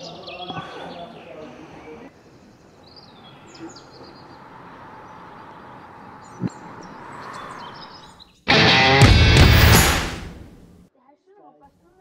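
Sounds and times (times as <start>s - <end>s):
faint outdoor hiss: 0.0s - 8.5s
small birds chirping: 0.0s - 8.5s.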